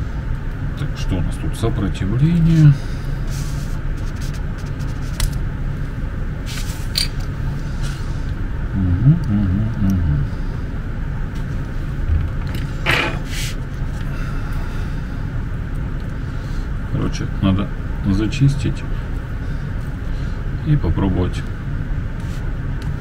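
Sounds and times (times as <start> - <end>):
low background rumble: 0.0 - 23.0
low hum: 0.0 - 23.0
short scrape: 12.9 - 13.6.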